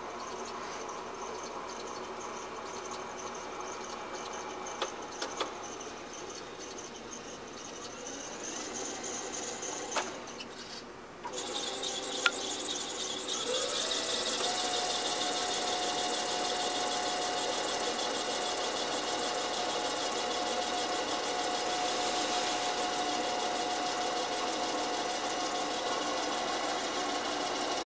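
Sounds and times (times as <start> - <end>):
electric motor whine: 11.3 - 27.8.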